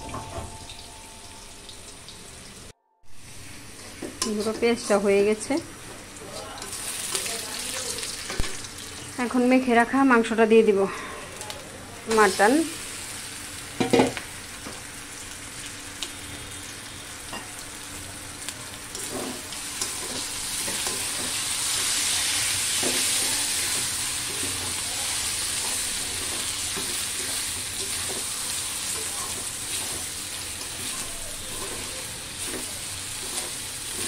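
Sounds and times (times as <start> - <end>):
meat sizzling in hot oil: 0.0 - 9.7, 11.4 - 34.0
metal spatula scraping a pan: 3.7 - 5.2, 18.9 - 22.0, 30.7 - 34.0.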